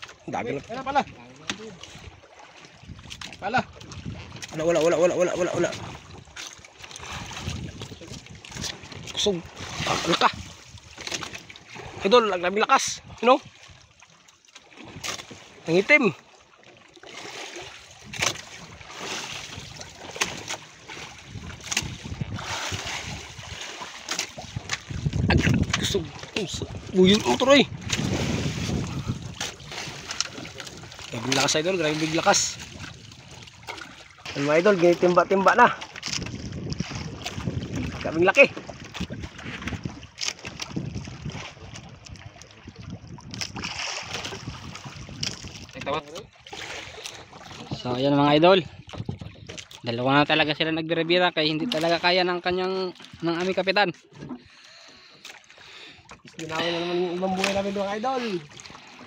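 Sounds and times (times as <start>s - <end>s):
sea water rushing and sloshing: 0.0s - 59.0s
waves slapping floats: 0.0s - 59.0s
wind buffeting microphone: 2.0s - 11.0s, 21.0s - 23.7s, 24.3s - 50.3s.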